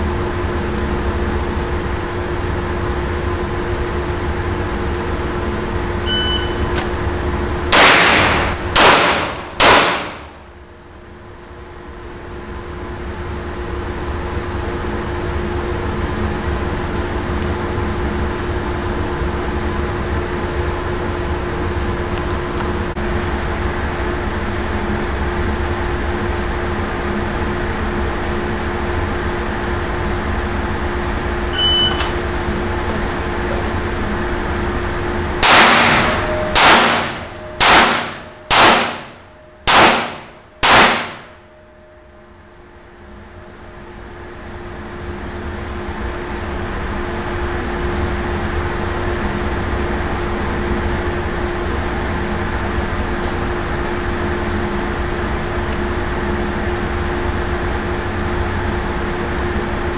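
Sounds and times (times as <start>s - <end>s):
ventilation hum: 0.0s - 59.9s
shot timer beep: 6.0s - 6.7s, 31.5s - 32.1s
handgun shots echoing: 7.7s - 10.4s, 35.4s - 41.4s.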